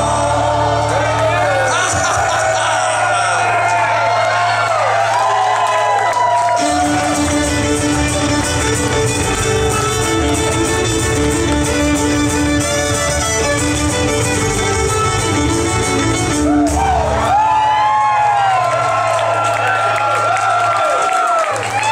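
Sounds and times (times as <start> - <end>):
acoustic guitar: 0.0 - 2.3, 6.5 - 18.8
upright bass: 0.0 - 20.4
crowd shouting and cheering: 0.0 - 21.9
fiddle: 6.5 - 17.4.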